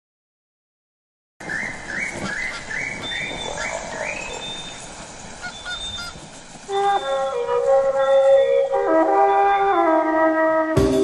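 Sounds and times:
faint chirps: 1.5 - 8.3
music with brass-like tones: 6.7 - 11.0.

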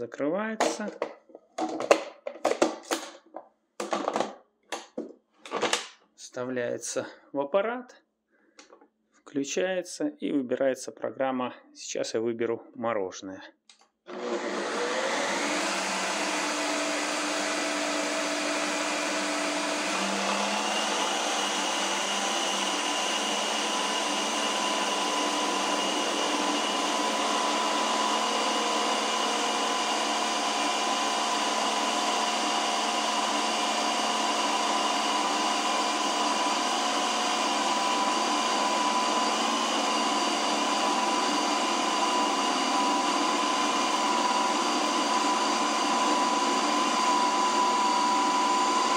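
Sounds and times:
ice cream maker motor whine: 14.1 - 48.9.

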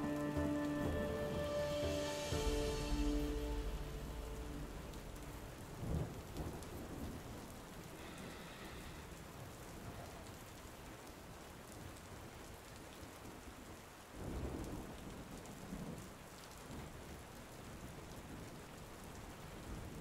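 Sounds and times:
steady rain falling: 0.0 - 20.0
low rumble: 0.8 - 6.5.

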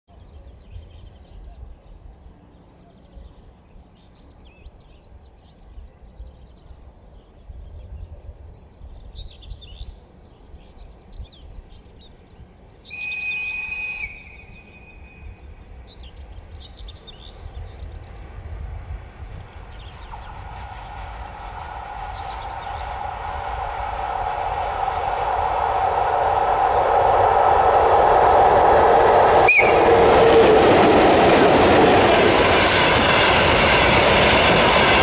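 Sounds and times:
birds chirping: 9.0 - 35.0
locomotive whistle blast: 12.9 - 15.3, 29.3 - 30.6
low rumble: 18.8 - 35.0.

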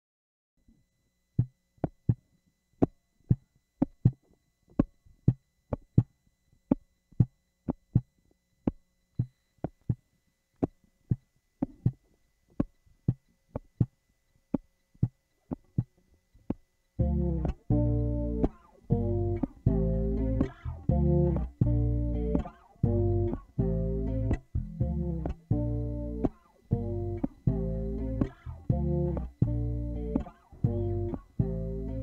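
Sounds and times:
muted electric bass notes: 16.9 - 32.0.

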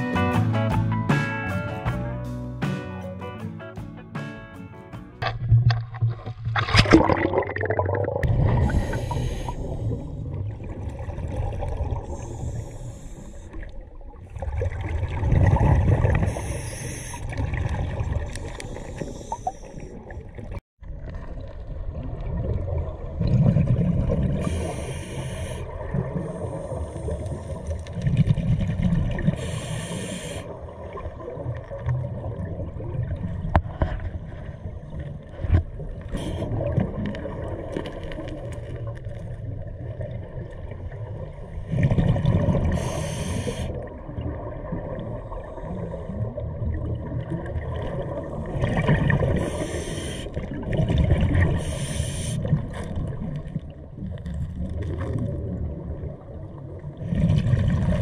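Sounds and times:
exhaled bubbles rushing: 5.3 - 24.9, 25.6 - 29.7, 30.5 - 58.0
hissing regulator inhale: 8.5 - 10.4, 12.0 - 13.6, 16.2 - 17.4, 18.3 - 20.0, 24.4 - 27.7, 29.2 - 30.6, 36.1 - 36.6, 42.6 - 43.8, 49.3 - 50.5, 51.5 - 52.6.

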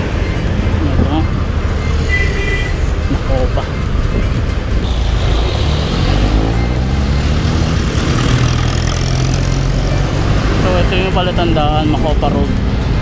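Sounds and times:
scooter engine accelerating: 4.9 - 10.4.

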